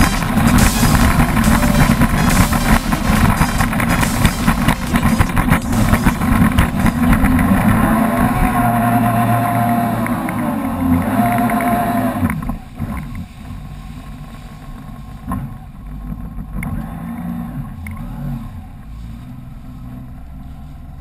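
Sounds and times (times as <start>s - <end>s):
rushing spray: 0.0s - 14.7s
jet ski engine: 0.0s - 21.0s.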